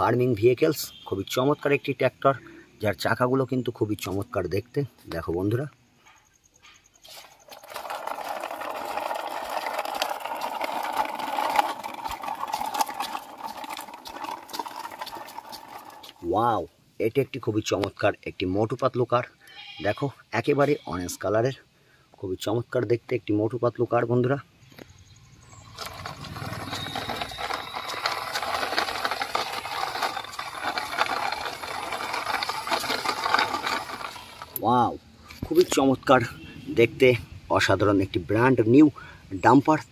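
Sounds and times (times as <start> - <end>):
toy car wheels rolling on stone: 7.0 - 18.0, 25.4 - 36.2.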